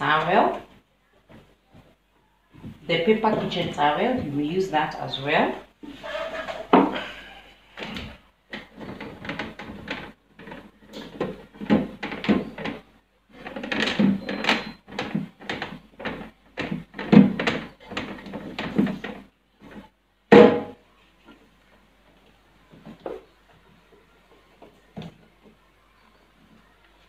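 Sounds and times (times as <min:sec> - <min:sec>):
cloth rubbing fridge shelves: 0:05.8 - 0:19.9.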